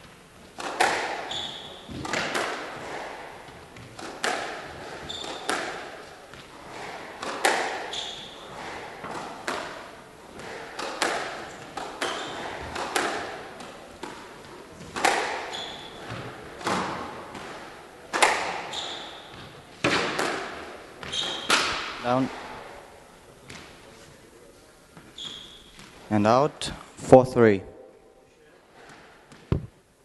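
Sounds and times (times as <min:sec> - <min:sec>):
squash ball hits: 0:00.6 - 0:22.5, 0:28.9 - 0:29.7
sneaker squeaks on wooden floor: 0:01.2 - 0:02.2, 0:04.8 - 0:05.7, 0:07.9 - 0:08.7, 0:11.5 - 0:12.7, 0:15.4 - 0:16.8, 0:18.6 - 0:19.7, 0:21.0 - 0:21.9, 0:25.0 - 0:26.0.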